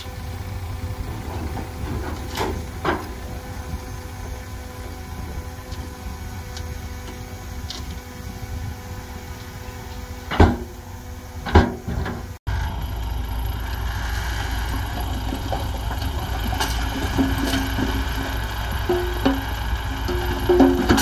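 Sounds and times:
heavy machinery rumbling: 0:00.0 - 0:21.0
loud knocks: 0:15.0 - 0:21.0.

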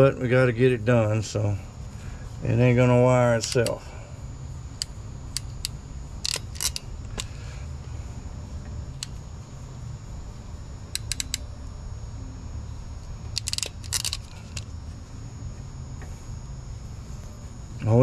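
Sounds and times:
steady low hum: 0:00.0 - 0:18.0
wire crimper clicking: 0:04.8 - 0:07.3, 0:10.9 - 0:11.5, 0:13.3 - 0:14.7.

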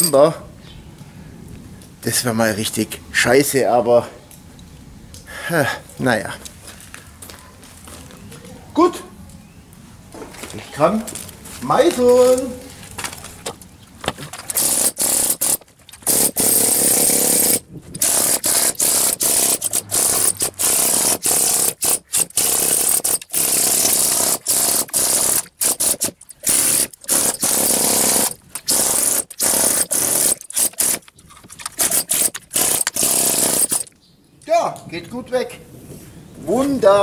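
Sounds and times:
pneumatic chisel hammer chattering: 0:14.1 - 0:33.9.

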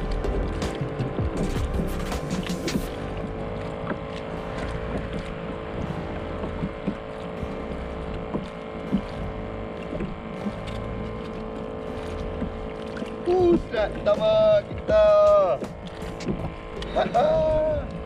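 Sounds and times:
steady mechanical hum: 0:00.0 - 0:18.0
water noise: 0:00.0 - 0:18.0.

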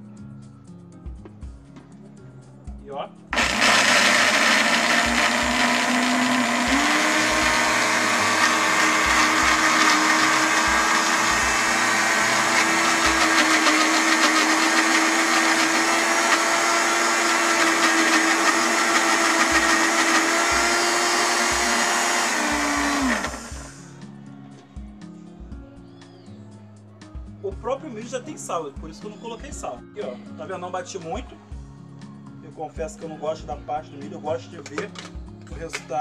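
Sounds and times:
electric blender running: 0:03.4 - 0:23.8.

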